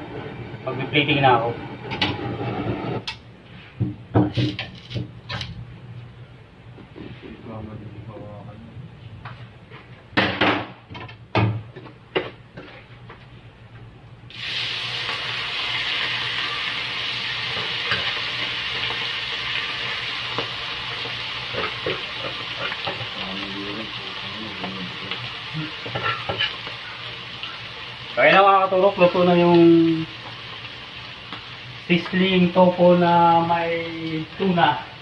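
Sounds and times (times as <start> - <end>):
food sizzling on hot plate: 14.3 - 35.0.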